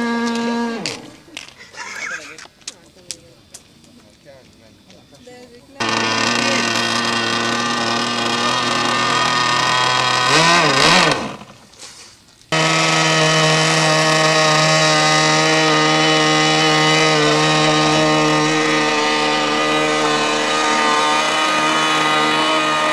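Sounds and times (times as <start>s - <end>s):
model jet engine running: 0.0s - 11.6s, 12.5s - 22.9s.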